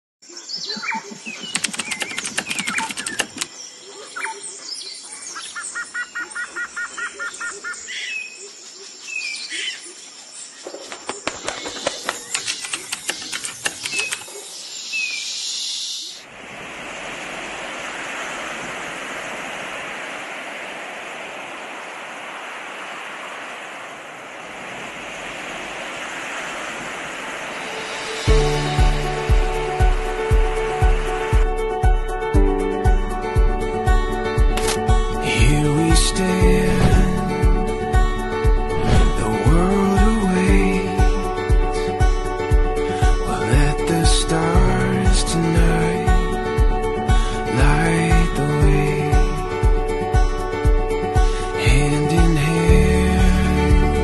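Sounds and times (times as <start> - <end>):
birds chirping and trilling: 0.2 - 16.3
fluttering clicks: 1.4 - 3.6, 11.0 - 14.3
sea surf rushing: 16.2 - 54.0.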